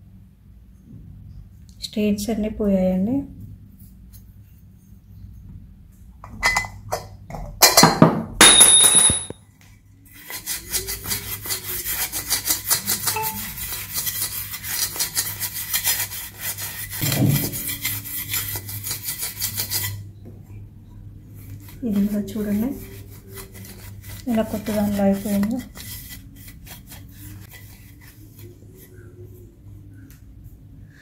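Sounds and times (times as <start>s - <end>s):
cloth scrubbing steel plate: 10.2s - 20.0s, 21.4s - 29.3s.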